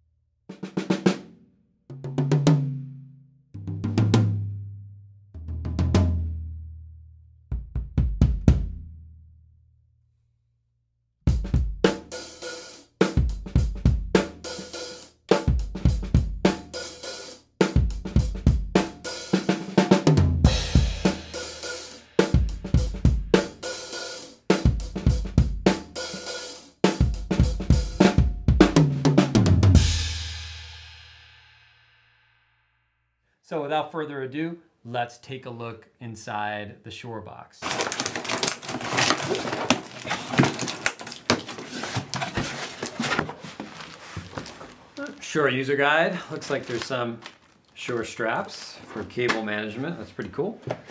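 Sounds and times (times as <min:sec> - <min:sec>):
drum kit played with sticks: 0:00.5 - 0:01.3, 0:01.9 - 0:03.0, 0:03.6 - 0:04.7, 0:05.4 - 0:06.5, 0:07.5 - 0:08.8, 0:11.3 - 0:31.0.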